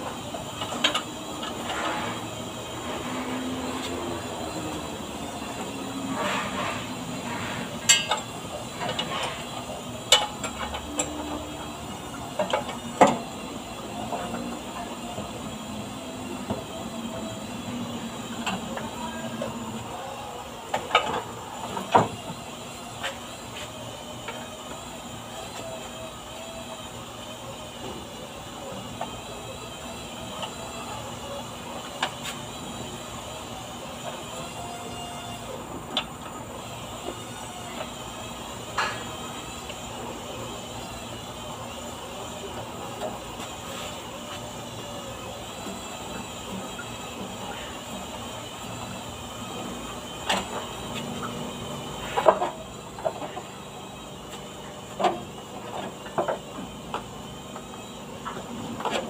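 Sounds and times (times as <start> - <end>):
hand tools clicking and knocking: 7.8 - 9.5.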